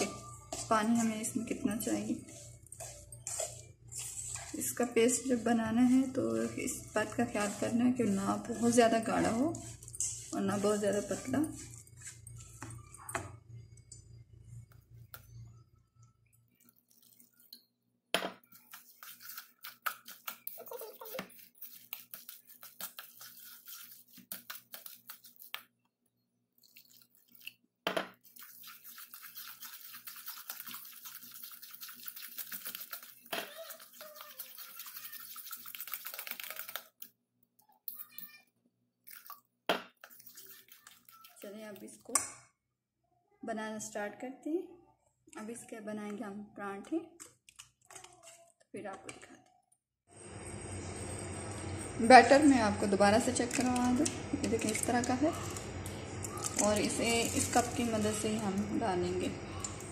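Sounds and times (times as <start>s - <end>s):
metal spoon stirring wet mix: 0.0s - 17.8s, 18.4s - 25.9s, 26.6s - 42.4s, 45.3s - 49.3s, 51.7s - 59.9s
water pouring from jug: 16.3s - 17.7s, 18.4s - 25.6s, 26.6s - 37.1s, 40.0s - 41.8s.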